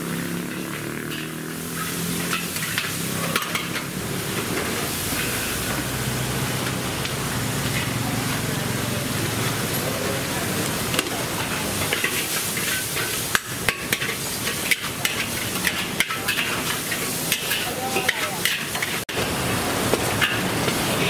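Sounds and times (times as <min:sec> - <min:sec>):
metal utensil scraping a pan: 0:00.0 - 0:05.8, 0:11.0 - 0:19.1, 0:20.1 - 0:21.0
food sizzling: 0:00.0 - 0:21.0.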